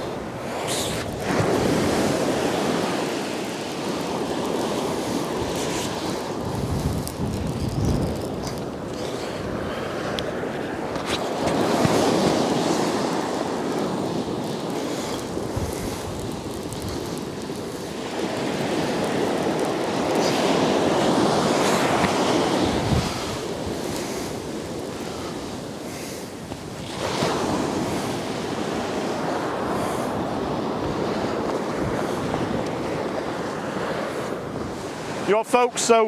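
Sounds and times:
sea surf breaking on beach: 0.0 - 36.0.

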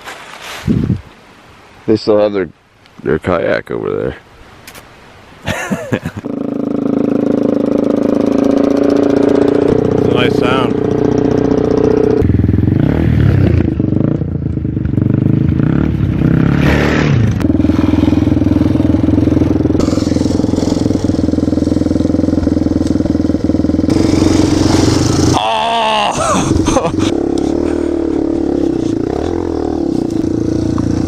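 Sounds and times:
dirt bike engines revving: 5.5 - 31.0.

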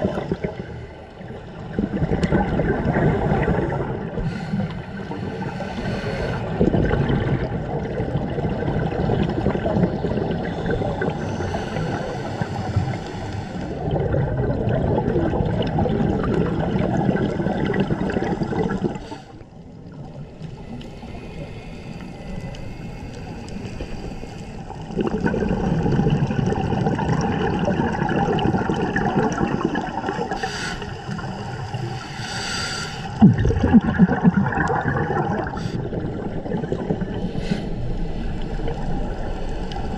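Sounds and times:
underwater regulator bubbles: 0.0 - 21.6, 22.4 - 39.9.

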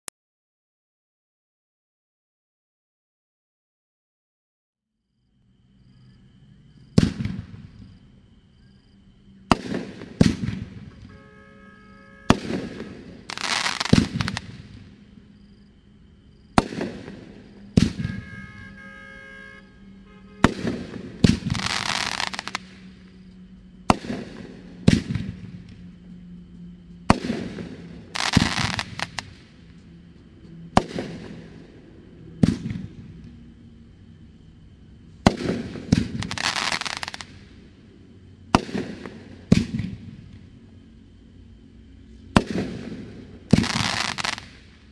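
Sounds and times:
firework bursts banging: 12.0 - 14.8, 16.5 - 19.0, 20.4 - 22.9, 27.1 - 29.4, 35.2 - 37.4, 42.3 - 44.7
firework crackling: 12.2 - 15.0, 20.4 - 23.1, 27.1 - 29.6, 35.2 - 37.5, 42.4 - 44.9.

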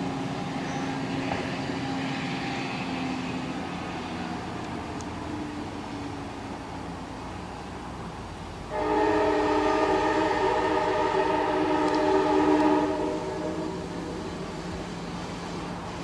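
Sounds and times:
train rumble: 0.0 - 16.0
locomotive air horn: 8.7 - 14.5.

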